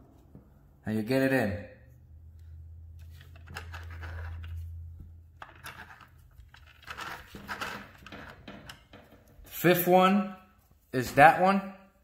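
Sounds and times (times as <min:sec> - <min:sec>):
hands handling sewing machine: 0:05.4 - 0:09.4.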